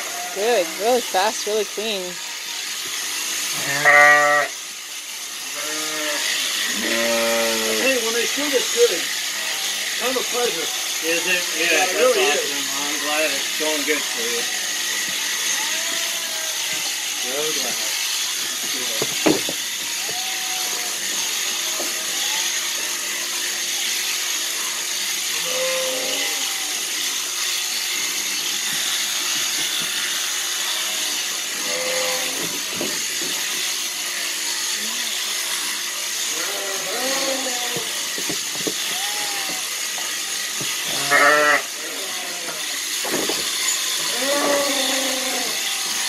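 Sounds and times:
shearing handpiece buzzing: 0:00.0 - 0:46.0
sheep bleating: 0:03.5 - 0:04.6, 0:05.4 - 0:08.1, 0:14.5 - 0:17.2, 0:19.9 - 0:22.7, 0:25.3 - 0:27.0, 0:30.8 - 0:32.5, 0:36.2 - 0:38.1, 0:38.8 - 0:39.9, 0:40.9 - 0:42.9, 0:44.0 - 0:46.0.

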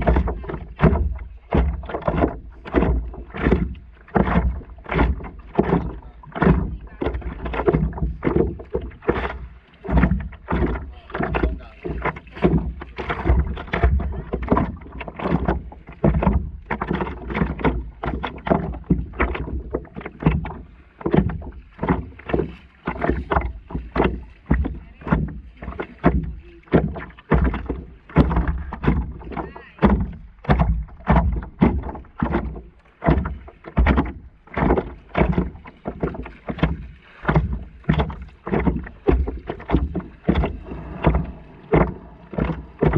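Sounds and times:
small waves lapping against a paddleboard: 0:00.0 - 0:42.9
low rumble: 0:37.3 - 0:42.9.

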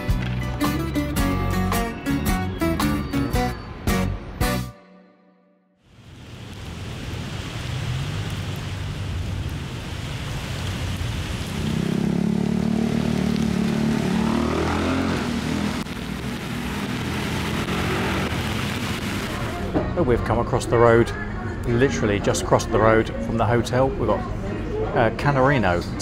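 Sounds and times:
tyres hissing on wet road: 0:05.9 - 0:19.8
vehicle engine: 0:10.7 - 0:19.8.

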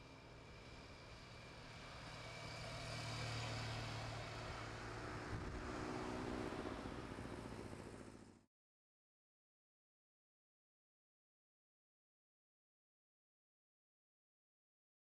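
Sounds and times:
wind and road noise: 0:00.1 - 0:08.4.

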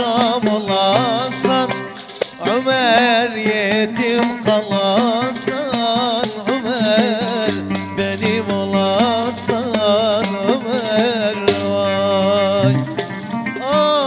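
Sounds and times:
hand percussion rhythm: 0:00.0 - 0:14.0
oud melody: 0:06.4 - 0:13.8
low held note: 0:07.9 - 0:12.7.

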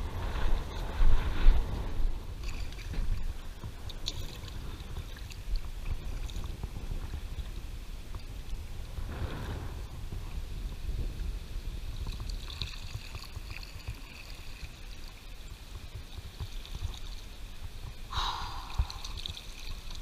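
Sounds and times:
paddle strokes splashing water: 0:12.0 - 0:20.0
steady low rumble: 0:17.4 - 0:20.0.

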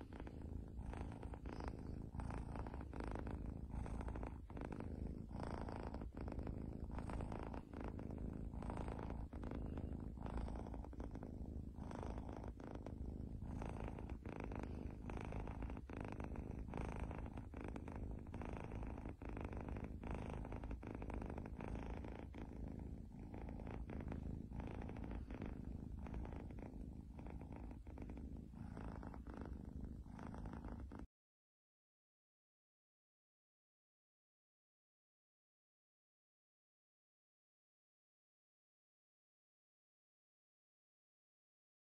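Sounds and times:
kitten purring: 0:00.0 - 0:31.1.

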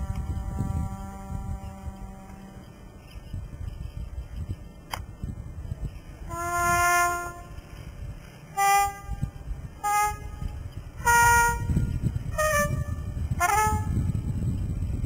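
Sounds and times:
jazz horn playing notes: 0:00.0 - 0:02.6, 0:06.3 - 0:07.6, 0:08.5 - 0:14.1.

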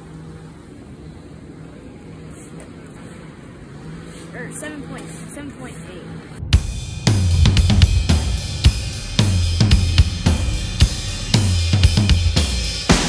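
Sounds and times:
drum beat with cymbals and bass: 0:06.5 - 0:13.0.

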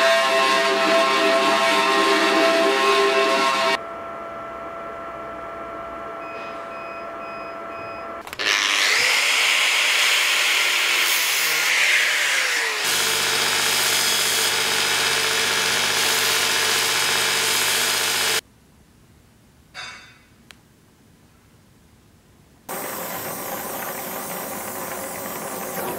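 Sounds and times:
belt grinder grinding metal: 0:08.4 - 0:18.4
machine motor humming: 0:22.7 - 0:25.9.

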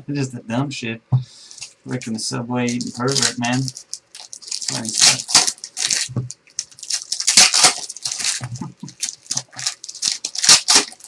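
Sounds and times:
plastic wrapping crinkling: 0:01.5 - 0:11.0.

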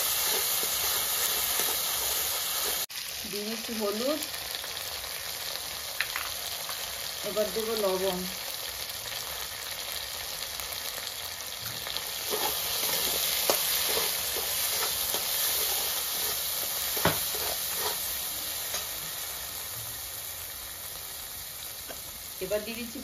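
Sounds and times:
metal spatula scraping pan: 0:00.0 - 0:02.8, 0:12.2 - 0:18.9
spice paste sizzling in oil: 0:00.0 - 0:23.0.

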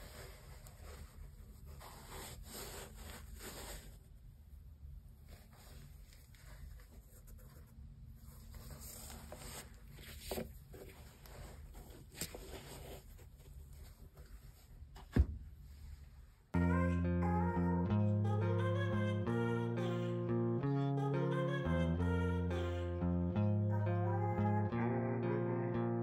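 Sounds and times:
gloved hands rubbing a sneaker: 0:00.0 - 0:04.2.

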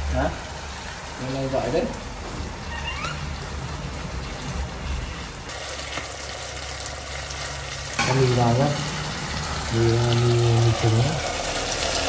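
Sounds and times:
meat sauce sizzling in a frying pan: 0:00.0 - 0:12.0
short rising squeak: 0:02.6 - 0:03.4.

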